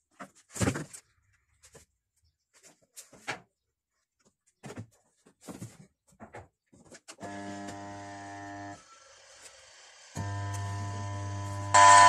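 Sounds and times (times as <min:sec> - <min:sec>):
spin dryer motor humming: 0:07.2 - 0:12.0.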